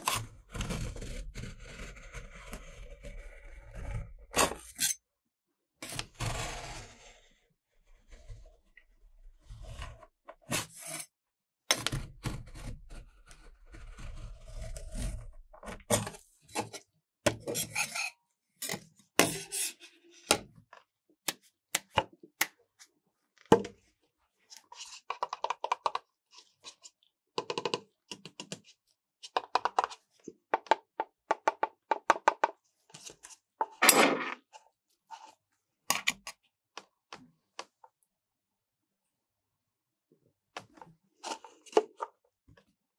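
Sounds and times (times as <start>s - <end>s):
metal spatulas scraping cold plate: 4.5s - 5.0s, 17.4s - 19.9s.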